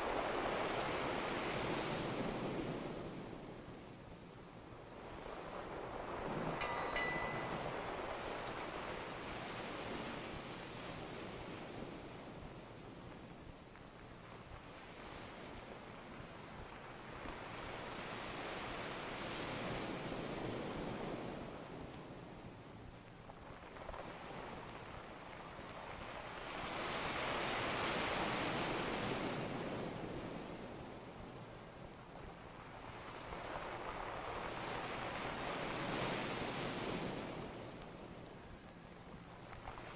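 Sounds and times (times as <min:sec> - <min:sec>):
rush of surf-like water: 0:00.0 - 0:39.9
faint high tone: 0:06.6 - 0:07.8.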